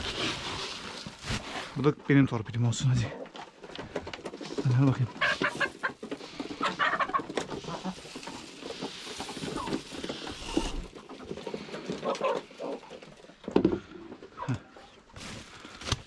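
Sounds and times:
birds pecking grain: 2.8 - 14.9
grain poured from a scoop: 7.6 - 11.0.

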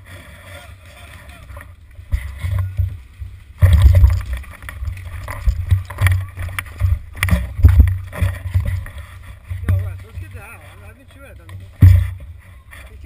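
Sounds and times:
knocks and clicks: 3.6 - 10.3.

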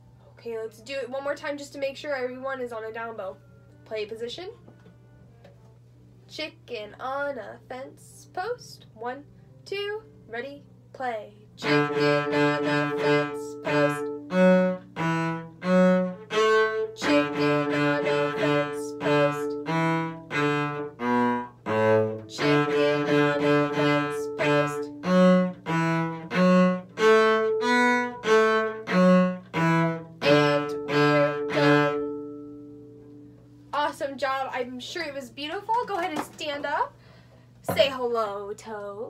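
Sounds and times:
cello playing: 11.6 - 33.6.

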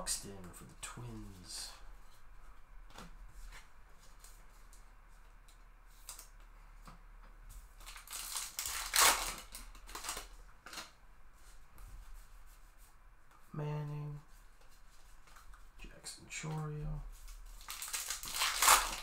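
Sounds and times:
trading cards rustling and clicking: 17.2 - 19.0.

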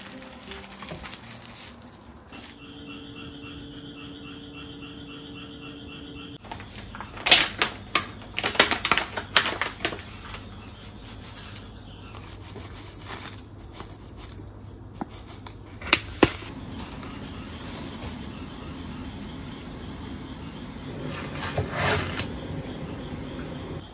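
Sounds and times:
paper packet crinkling: 0.0 - 2.6, 6.4 - 18.4.

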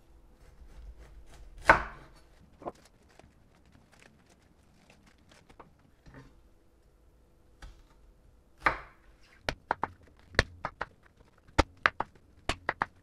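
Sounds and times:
cabbage leaves rustling: 2.2 - 6.0.

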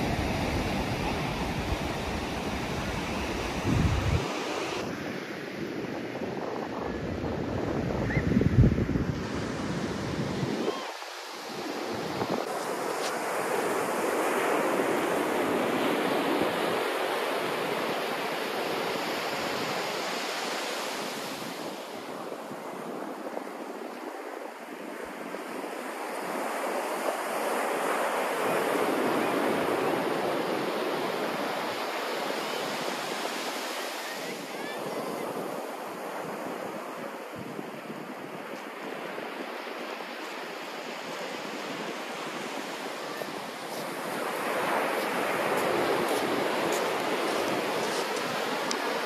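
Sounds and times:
sea surf breaking: 0.0 - 7.8, 24.5 - 49.0
wind buffeting microphone: 0.0 - 10.8.

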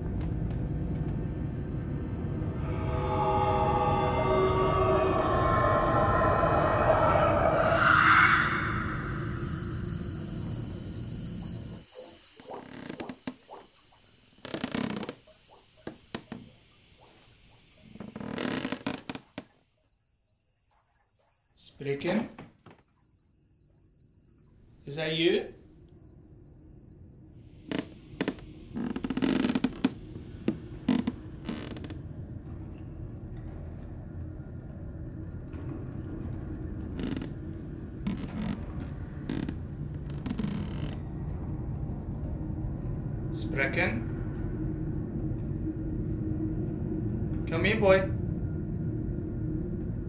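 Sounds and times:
low rumble: 0.0 - 11.8, 30.0 - 50.0
creaking: 2.1 - 19.6, 27.6 - 43.3
crickets chirping: 2.5 - 33.2, 36.1 - 43.3.

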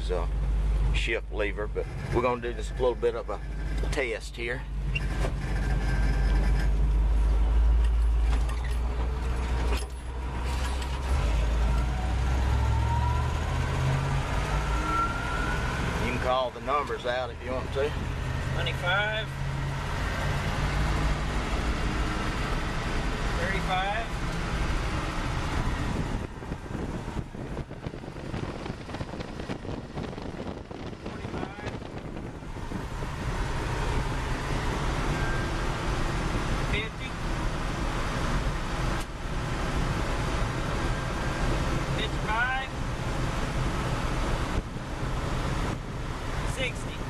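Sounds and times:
truck engine drone: 0.0 - 47.0
rising whine: 10.7 - 17.4
wind buffeting microphone: 24.6 - 34.8.

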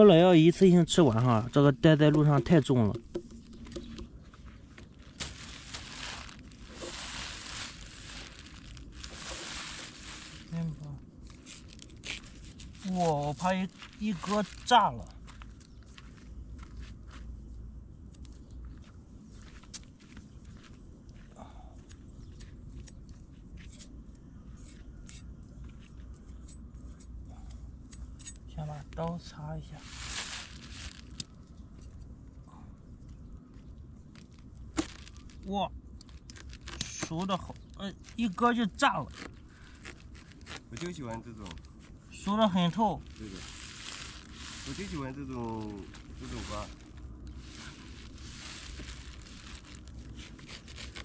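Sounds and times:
steady low rumble: 0.0 - 50.8
plastic bag crinkling: 4.8 - 15.0, 29.8 - 31.2, 34.1 - 51.0
knife scratches and rustles: 5.1 - 10.6, 43.1 - 51.0.

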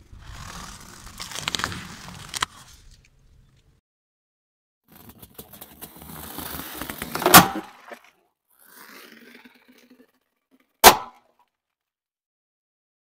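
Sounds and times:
balloons bursting with loud bangs: 10.8 - 11.2.

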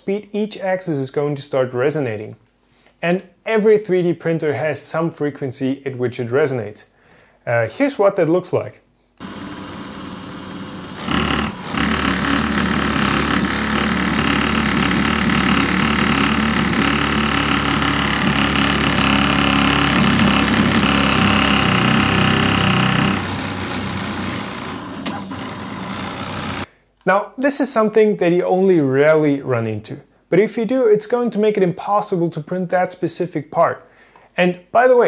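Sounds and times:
three d printer buzzing: 9.2 - 26.7.

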